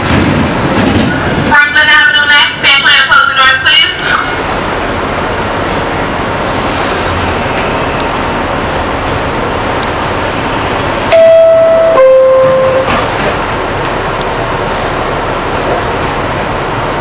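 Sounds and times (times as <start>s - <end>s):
train car hum: 0.0s - 17.0s
train doors sliding closed: 11.0s - 16.3s
two-tone door chime: 11.1s - 12.9s.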